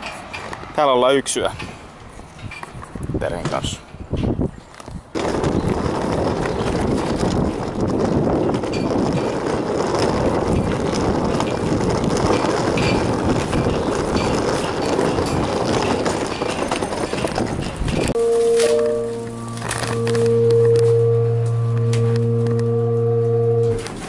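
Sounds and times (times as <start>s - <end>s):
suitcase wheels rattling on asphalt: 4.7s - 18.2s.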